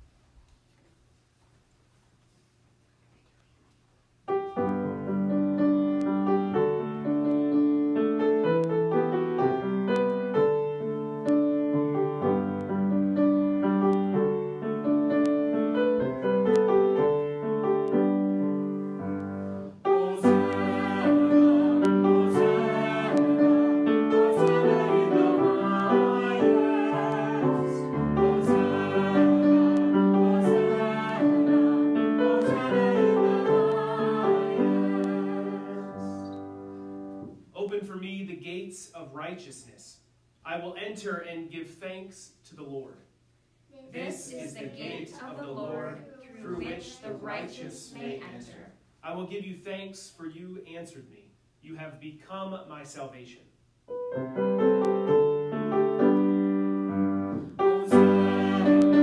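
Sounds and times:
piano music: 4.3 - 37.4, 53.9 - 59.0.

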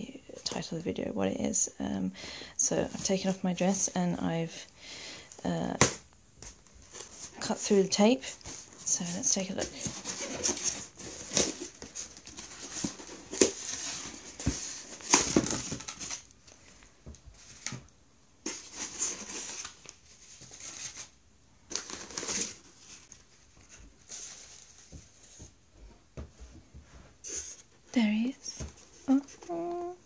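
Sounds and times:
packing paper crinkling: 18.5 - 24.8.

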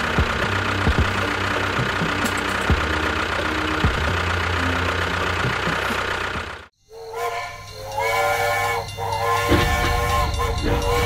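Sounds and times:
small tractor motor running: 0.0 - 11.0
whistle-like music chords: 6.8 - 11.0.

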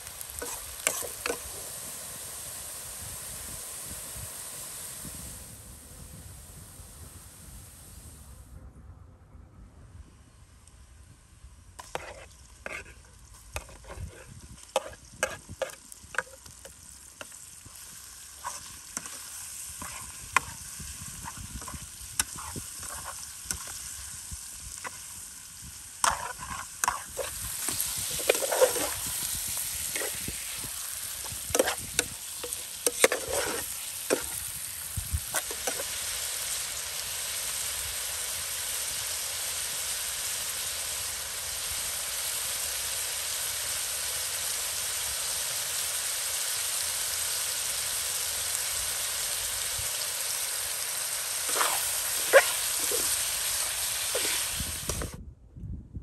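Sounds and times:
chicken sizzling in a pot: 0.0 - 8.4, 10.1 - 55.2
metal ladle scraping a pot: 0.4 - 1.6, 11.8 - 16.4, 18.4 - 20.6, 21.2 - 23.7, 26.0 - 30.6, 31.3 - 34.4, 51.4 - 55.1.

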